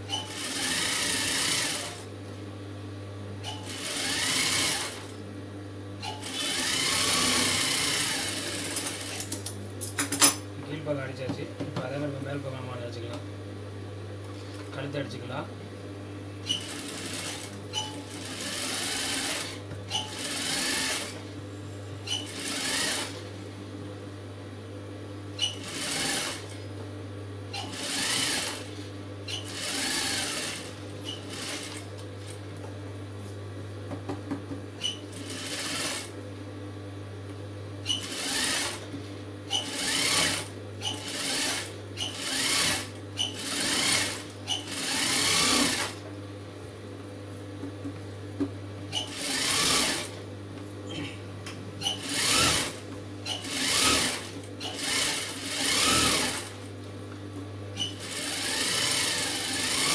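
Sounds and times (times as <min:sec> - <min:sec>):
sewing machine stitching: 0:00.1 - 0:02.0, 0:03.4 - 0:05.1, 0:06.0 - 0:09.3, 0:16.4 - 0:21.2, 0:22.1 - 0:23.2, 0:25.4 - 0:26.5, 0:27.5 - 0:28.6, 0:29.3 - 0:31.8, 0:34.8 - 0:36.1, 0:37.9 - 0:38.9, 0:39.5 - 0:46.0, 0:48.9 - 0:50.2, 0:51.8 - 0:56.7, 0:57.8 - 0:59.9.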